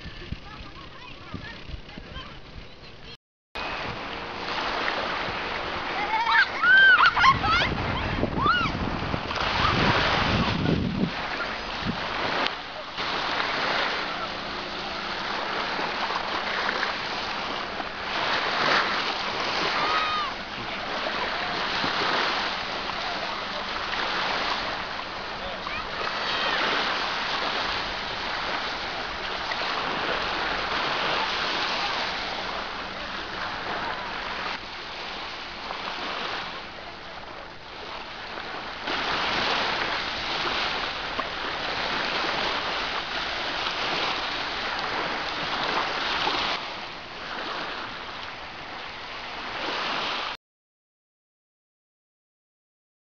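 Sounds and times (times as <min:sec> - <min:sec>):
faint voices: 0:00.0 - 0:04.5, 0:09.5 - 0:16.6, 0:19.5 - 0:34.6
sea water rushing: 0:00.0 - 0:50.4.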